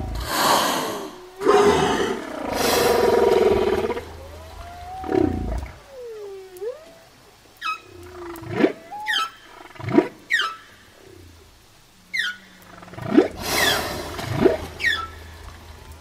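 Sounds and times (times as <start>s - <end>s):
whale moans and whistles: 0.0s - 7.1s, 7.7s - 9.3s.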